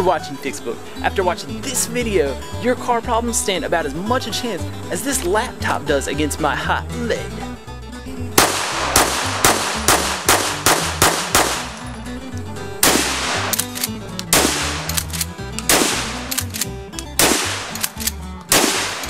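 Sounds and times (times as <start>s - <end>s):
music with heavy bass beat: 8.2s - 19.0s
shotgun blasts: 8.4s - 11.8s, 12.8s - 19.0s
pistol shots: 8.4s - 11.9s, 12.8s - 19.0s.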